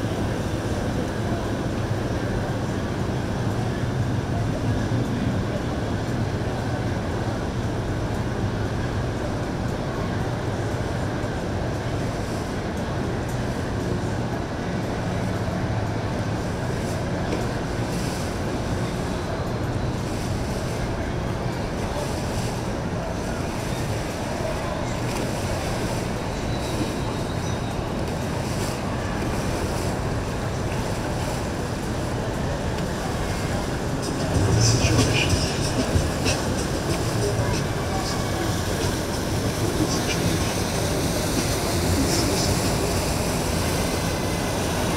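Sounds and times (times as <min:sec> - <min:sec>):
water wash: 0:00.0 - 0:44.9
boat engine running: 0:15.1 - 0:44.9.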